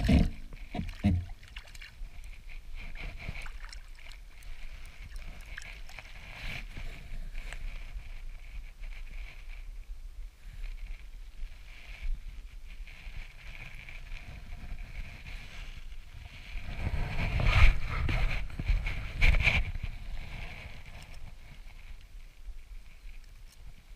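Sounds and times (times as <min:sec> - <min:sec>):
water lapping against a boat: 0:00.0 - 0:06.9
wind rumbling on microphone: 0:00.0 - 0:23.9.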